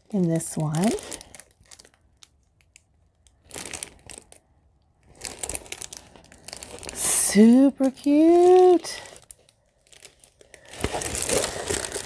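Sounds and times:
packaging crinkling and rustling: 0:00.0 - 0:12.0.

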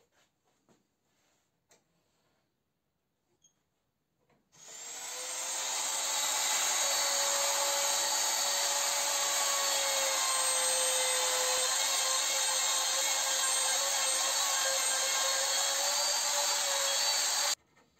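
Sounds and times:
trim router whining: 0:04.6 - 0:17.6.

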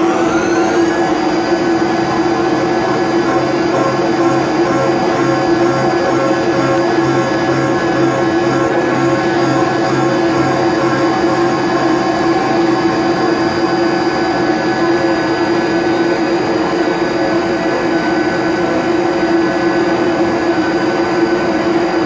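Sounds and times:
milling machine spindle tone: 0:00.0 - 0:14.2.

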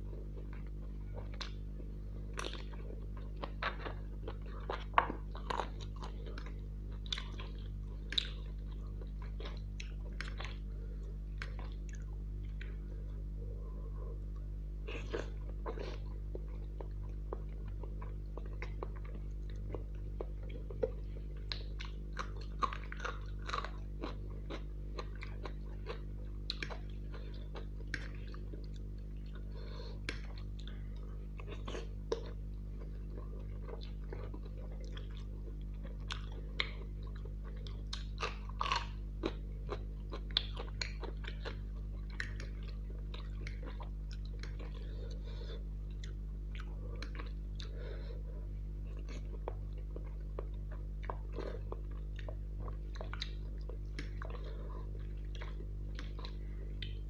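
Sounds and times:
close chewing of noodles: 0:00.0 - 0:57.0
low hum: 0:00.0 - 0:57.0.

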